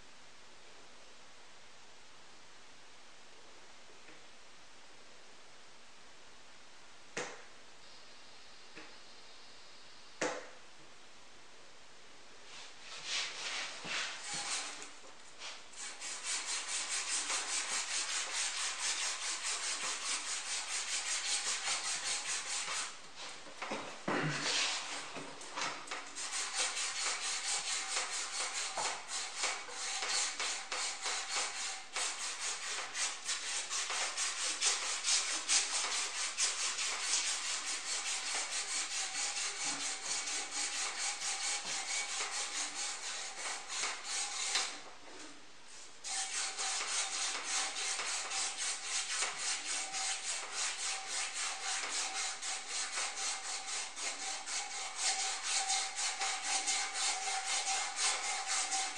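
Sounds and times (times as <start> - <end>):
rubbing strokes on metal rod: 12.5 - 23.4, 24.4 - 44.8, 46.0 - 58.9.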